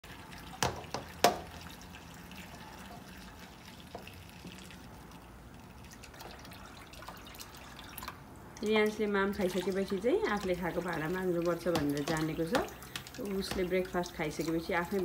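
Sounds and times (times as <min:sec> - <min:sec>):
water splashing over dishes: 0:00.0 - 0:15.0
tap running into sink: 0:00.6 - 0:01.5.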